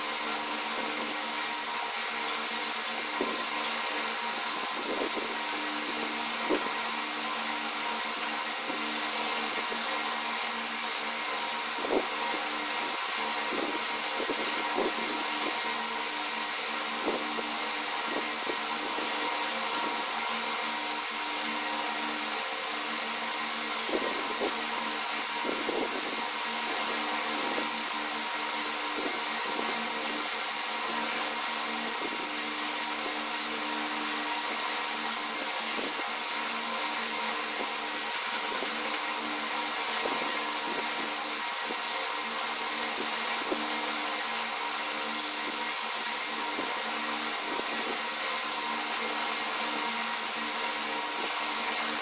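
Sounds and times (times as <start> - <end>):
machine hum: 0.0 - 52.0.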